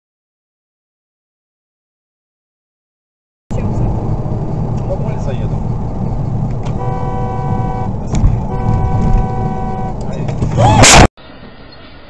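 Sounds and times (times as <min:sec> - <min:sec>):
road noise: 0:03.5 - 0:12.0
car horn blasts: 0:06.7 - 0:11.0.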